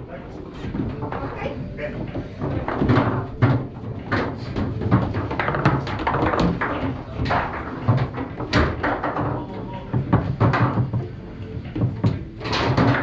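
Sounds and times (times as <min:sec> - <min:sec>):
foosball ball knocks and clacks: 0:00.5 - 0:13.0.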